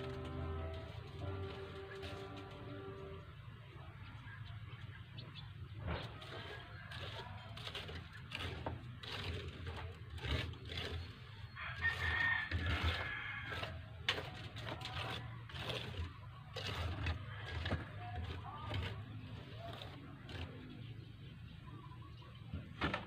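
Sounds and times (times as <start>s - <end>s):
hand tool scraping concrete: 0.0s - 3.4s, 5.7s - 21.6s
rooster crowing: 11.5s - 13.8s.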